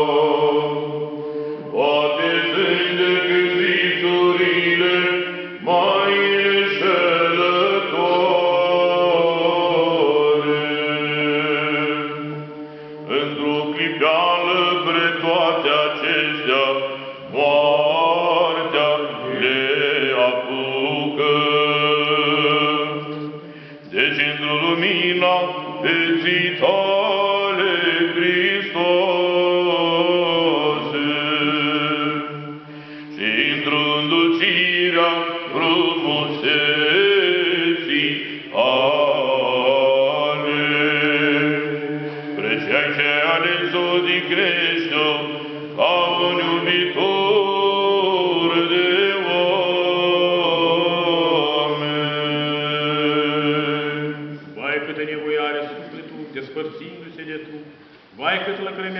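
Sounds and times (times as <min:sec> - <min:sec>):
men chanting: 0:01.7 - 0:57.5.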